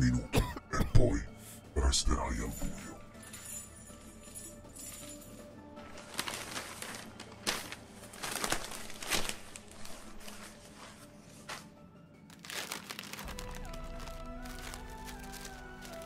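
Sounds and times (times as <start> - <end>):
quiet background music: 0.0 - 16.0
newspaper pages rustling: 5.8 - 16.0.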